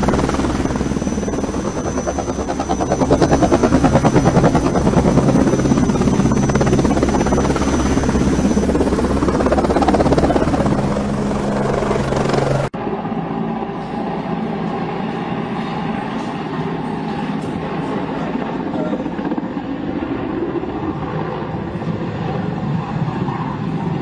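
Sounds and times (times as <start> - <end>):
helicopter engine hum: 0.0 - 24.0
helicopter rotor beat: 0.0 - 24.0
high turbine whine: 0.0 - 24.0.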